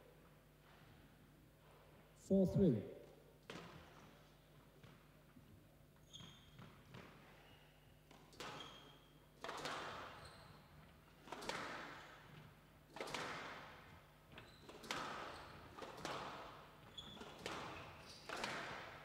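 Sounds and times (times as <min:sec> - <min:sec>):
shoes squeaking on floor: 0:06.0 - 0:07.8, 0:08.5 - 0:09.2, 0:10.2 - 0:10.8, 0:14.3 - 0:14.7, 0:16.8 - 0:18.3
squash ball hits echoing: 0:09.4 - 0:10.2, 0:11.2 - 0:14.0, 0:14.8 - 0:16.6, 0:17.2 - 0:19.0.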